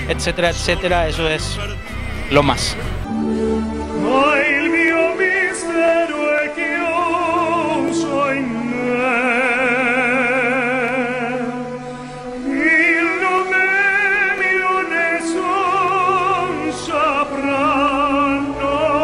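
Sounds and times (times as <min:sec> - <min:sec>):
man singing operatically: 0:00.0 - 0:03.1, 0:04.0 - 0:11.6, 0:12.4 - 0:19.0
instrumental accompaniment: 0:00.0 - 0:05.5.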